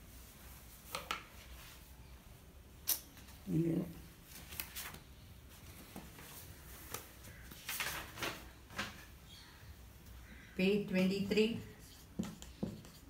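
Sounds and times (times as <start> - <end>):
short scrapes and taps: 11.8 - 13.0.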